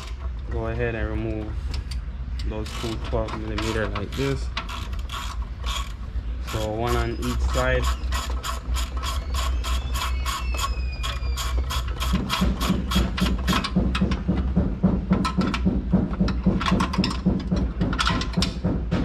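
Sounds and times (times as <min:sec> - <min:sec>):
steady low hum: 0:00.0 - 0:19.0
ratchet wrench clicking: 0:01.9 - 0:13.8.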